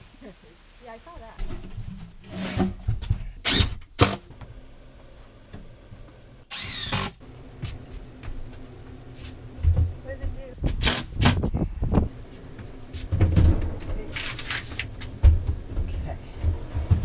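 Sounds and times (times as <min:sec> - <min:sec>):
wooden cabinet scraping and knocking: 0:01.4 - 0:03.3, 0:12.9 - 0:17.0
cordless drill driving screw: 0:03.4 - 0:04.2, 0:06.5 - 0:07.2.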